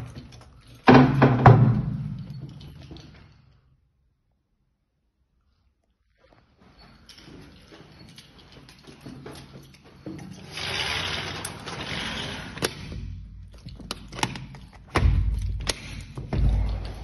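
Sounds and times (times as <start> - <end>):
sliding door scraping: 10.3 - 12.9
sliding door rumble: 10.5 - 12.6.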